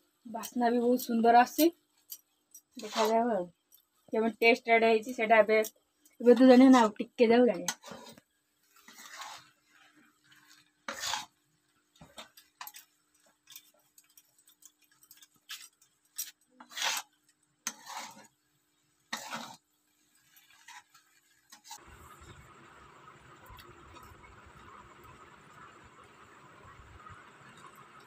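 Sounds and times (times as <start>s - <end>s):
spatula scraping a steel wok: 2.7s - 3.4s, 6.3s - 18.4s, 19.0s - 22.3s
faint steady hum: 21.8s - 28.0s.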